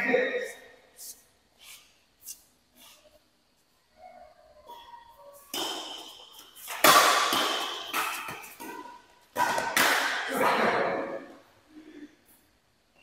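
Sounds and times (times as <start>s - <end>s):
rackets striking shuttlecock: 5.4s - 10.6s.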